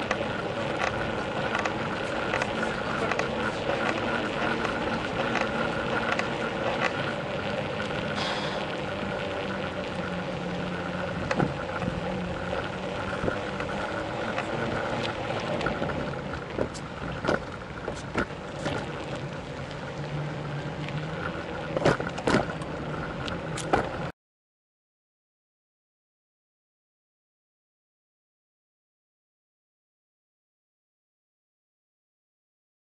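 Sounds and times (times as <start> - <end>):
bicycle rattling knocks: 0.0 - 19.8, 20.8 - 24.1
bicycle tyre and wind rush: 0.0 - 24.1.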